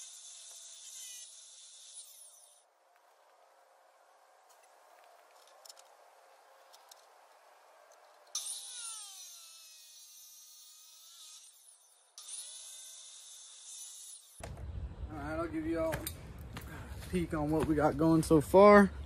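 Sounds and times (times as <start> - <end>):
chop saw cutting metal: 0.0 - 2.7, 8.0 - 14.4.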